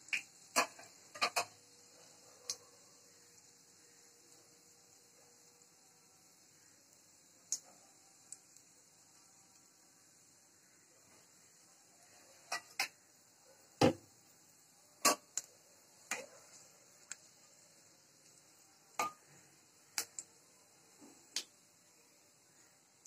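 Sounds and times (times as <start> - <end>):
seeds popping in hot oil: 0.0 - 23.0
spatula stirring against pan: 15.0 - 17.4.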